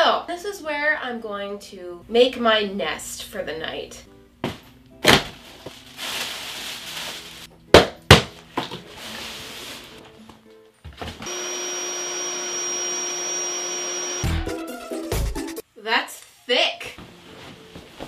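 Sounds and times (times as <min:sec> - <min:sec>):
light background music: 0:00.0 - 0:11.2, 0:14.2 - 0:18.0
air mattress pump whining: 0:11.2 - 0:14.5.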